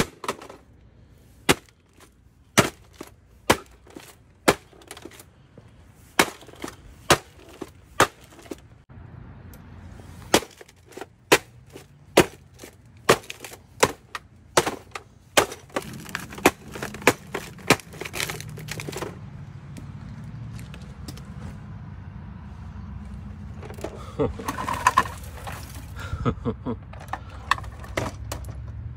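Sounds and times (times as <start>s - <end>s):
plastic and screen cracking: 15.4s - 19.1s.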